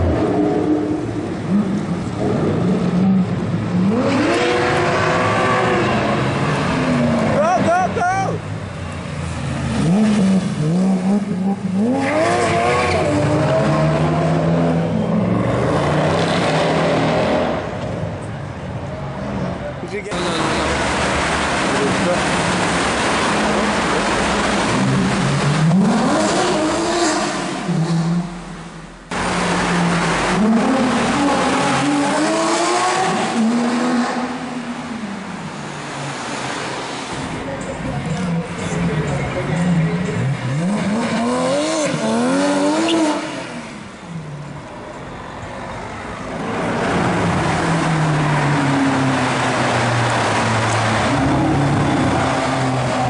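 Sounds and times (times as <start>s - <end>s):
sports car engine revving: 0.0s - 7.4s, 20.1s - 35.2s, 38.0s - 44.0s
car engine echoing in tunnel: 0.0s - 53.0s.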